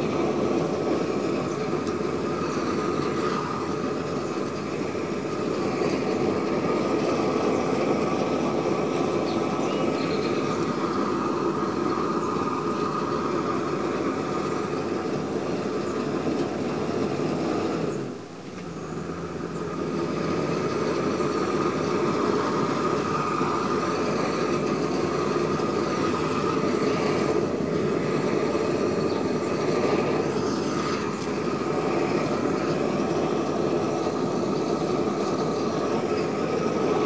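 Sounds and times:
propane torch flame rushing: 0:00.0 - 0:37.0.

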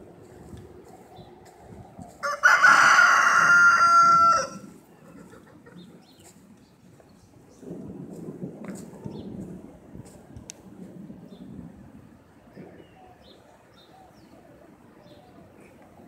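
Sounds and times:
rooster crowing: 0:02.2 - 0:04.7.

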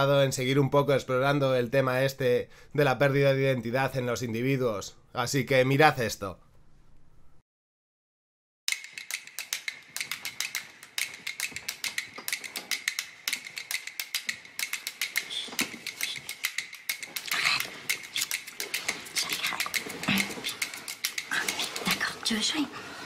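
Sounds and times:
breathing: 0:02.5 - 0:02.8, 0:22.7 - 0:23.0
smacking kisses: 0:08.8 - 0:22.3.

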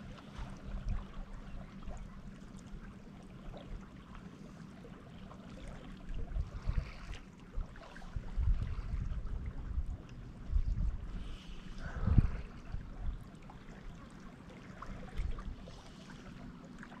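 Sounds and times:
wind rumbling on microphone: 0:06.0 - 0:14.1, 0:14.7 - 0:15.8.

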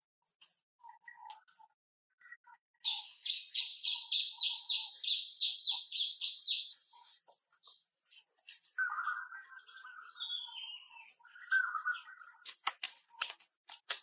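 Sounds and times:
pulsing insect call: 0:02.9 - 0:12.5
high-pitched insect buzz: 0:03.9 - 0:11.2
hands patting wet mud: 0:12.4 - 0:14.0.

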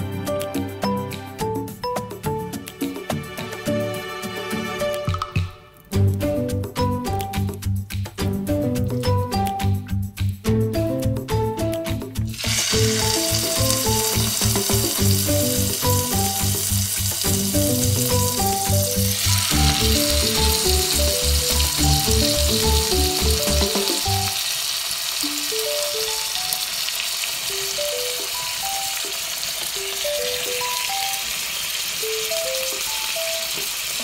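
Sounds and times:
plucked melody over pulsing bass: 0:04.9 - 0:24.3
steaks sizzling in a pan: 0:12.3 - 0:34.0.

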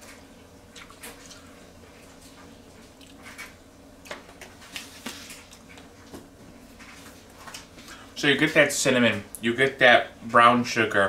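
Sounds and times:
low steady hum: 0:00.0 - 0:11.0
quiet chewing: 0:00.1 - 0:08.1.

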